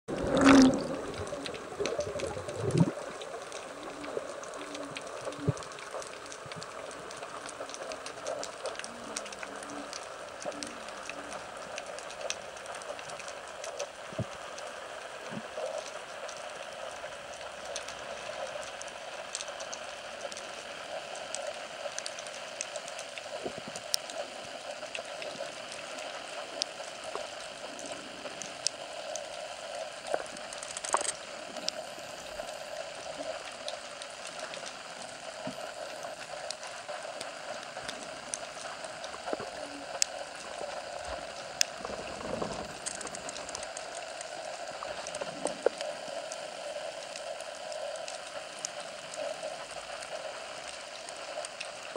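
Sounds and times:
underwater watery hiss: 0.1s - 5.4s
underwater clicks and crackles: 0.1s - 51.9s.

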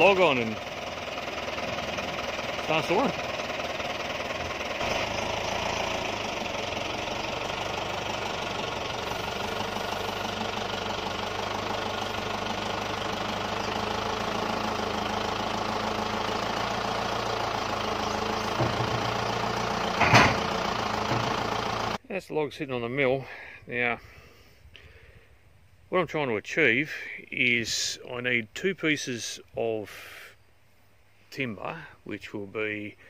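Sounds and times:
tractor engine running: 0.0s - 22.0s
log clunking onto steel: 18.2s - 21.6s.

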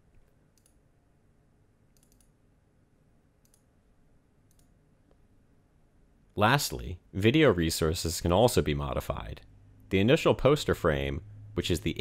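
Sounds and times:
computer mouse clicks: 0.1s - 0.8s, 1.9s - 2.4s, 3.4s - 3.7s, 4.4s - 5.2s.

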